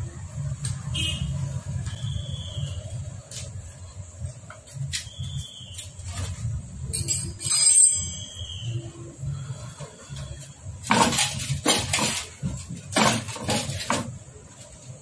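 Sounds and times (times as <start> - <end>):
metal engine parts clinking: 6.2 - 8.4, 10.8 - 14.2
metal knocks and rattles: 10.8 - 14.3.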